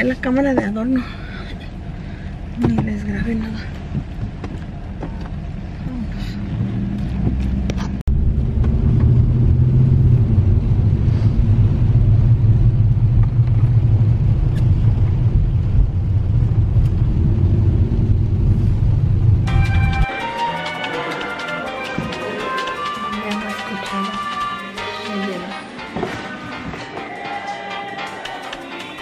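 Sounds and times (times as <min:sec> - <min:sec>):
car interior rumble: 0:00.0 - 0:20.2.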